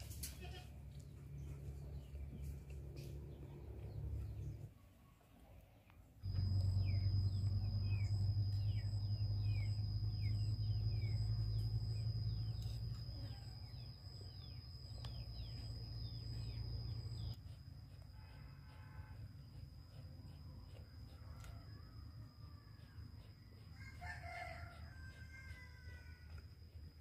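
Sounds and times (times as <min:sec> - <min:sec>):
steady low hum: 0:00.0 - 0:04.8, 0:06.0 - 0:27.0
thin steady high tone: 0:06.2 - 0:27.0
birds chirping: 0:06.3 - 0:17.6.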